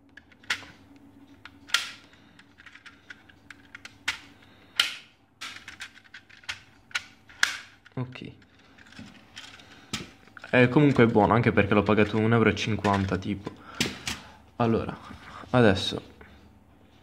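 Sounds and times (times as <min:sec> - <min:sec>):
plastic puzzle pieces clicking: 0:00.1 - 0:00.7, 0:01.4 - 0:11.1, 0:12.0 - 0:13.2.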